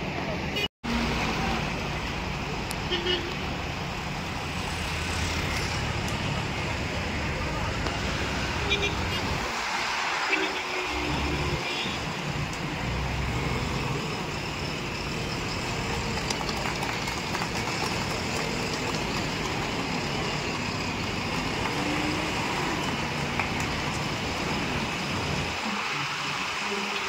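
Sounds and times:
diesel engine running: 0:11.1 - 0:26.6.

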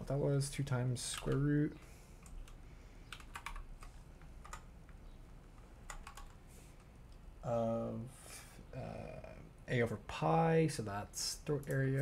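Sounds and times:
typing on computer keyboard: 0:02.2 - 0:04.7, 0:05.9 - 0:06.4.

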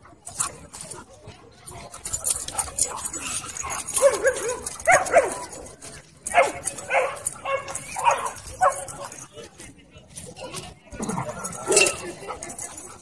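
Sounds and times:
dogs yipping and barking: 0:00.0 - 0:13.0
faint crackle of movement: 0:00.0 - 0:13.0.

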